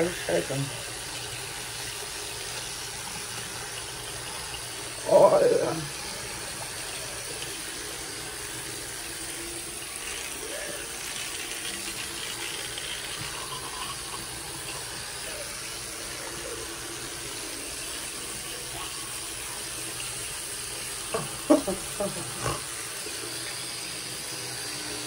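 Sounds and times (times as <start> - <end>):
water running from sink tap: 0.0 - 25.0.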